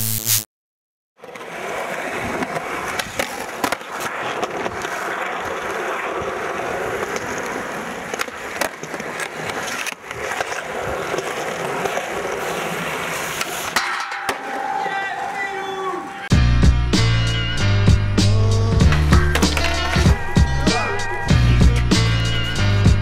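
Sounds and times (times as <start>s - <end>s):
skateboard clacking on ground: 1.2s - 15.8s, 18.8s - 20.8s
skateboard wheels rolling on concrete: 1.2s - 23.0s.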